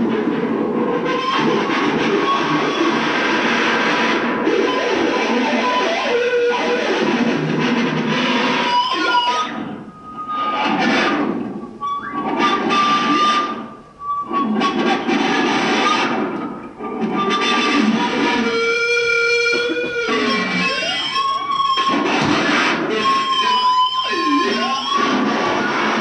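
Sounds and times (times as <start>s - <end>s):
distorted guitar music: 0.0s - 26.0s.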